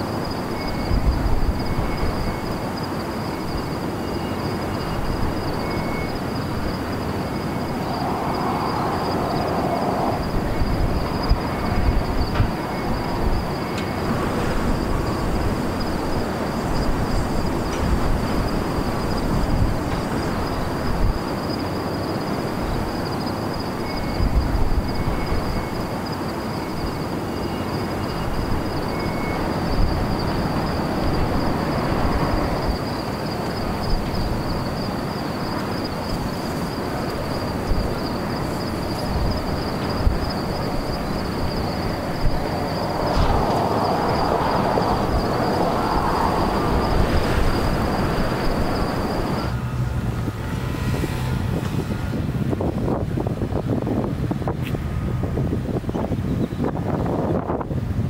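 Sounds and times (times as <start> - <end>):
high-pitched whine: 0.0 - 19.7
thin high whine: 0.0 - 52.3
wind buffeting microphone: 0.0 - 58.0.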